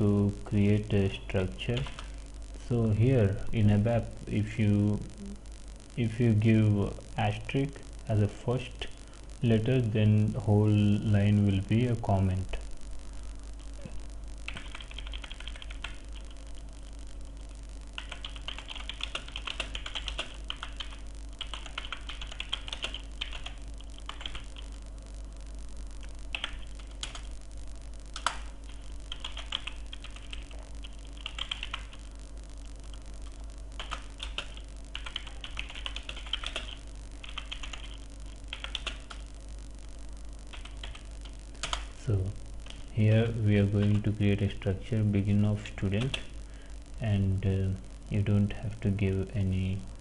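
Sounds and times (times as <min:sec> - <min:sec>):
steady low hum: 0:00.0 - 0:50.0
typing on computer keyboard: 0:14.5 - 0:16.3, 0:18.0 - 0:24.6, 0:26.3 - 0:27.2, 0:29.1 - 0:30.5, 0:31.1 - 0:32.0, 0:33.8 - 0:39.2, 0:41.6 - 0:41.9.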